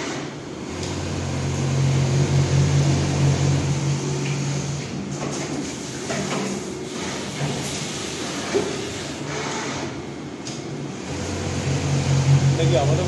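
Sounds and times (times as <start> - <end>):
low machine hum: 0.4 - 5.8, 10.1 - 13.0.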